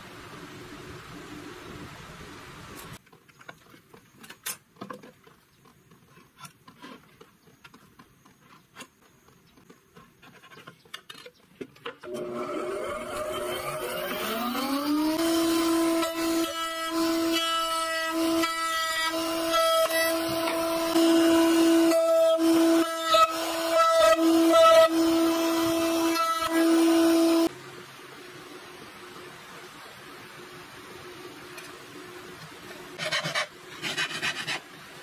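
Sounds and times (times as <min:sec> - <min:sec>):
drill press motor whining: 0:12.1 - 0:27.5.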